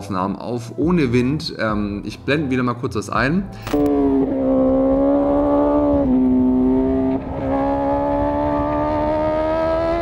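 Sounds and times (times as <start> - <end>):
motorcycle engine at speed: 3.8 - 10.0.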